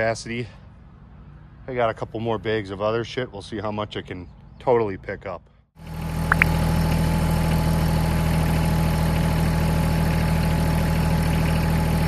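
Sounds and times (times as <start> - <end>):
tractor diesel engine running: 5.8 - 12.0.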